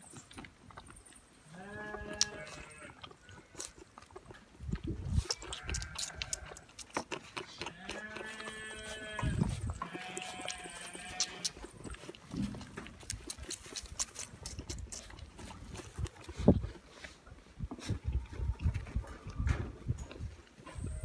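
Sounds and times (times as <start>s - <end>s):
goat kid slurping at bottle: 0.0s - 21.0s
goat bleating: 1.5s - 3.7s, 5.3s - 6.9s, 7.5s - 11.8s.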